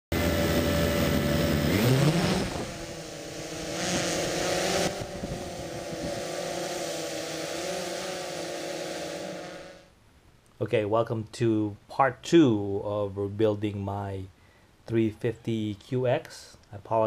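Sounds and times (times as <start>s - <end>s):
quadcopter propellers buzzing: 0.2s - 9.9s.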